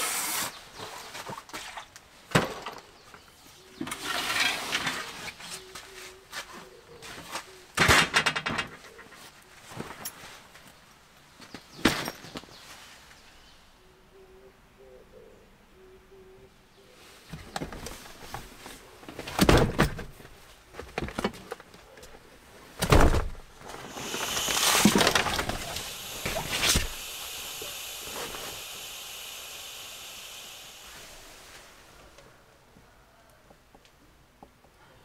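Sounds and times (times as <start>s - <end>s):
steady hiss: 0.0s - 1.0s, 23.5s - 33.0s.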